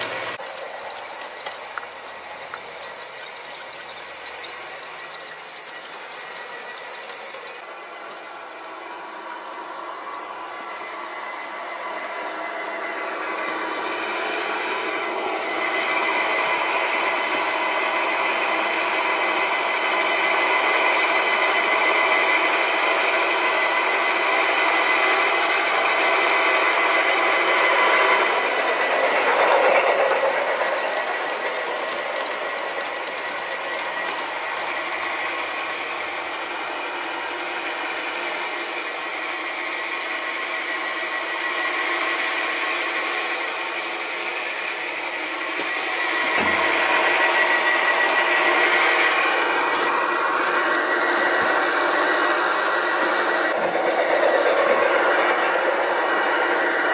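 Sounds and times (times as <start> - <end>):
model train rattling on track: 0.0 - 41.3, 42.0 - 56.9.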